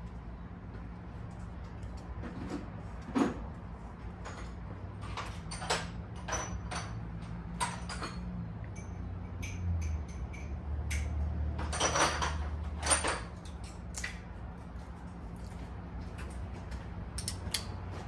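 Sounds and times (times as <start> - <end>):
hand tools clinking on metal: 4.2 - 14.2.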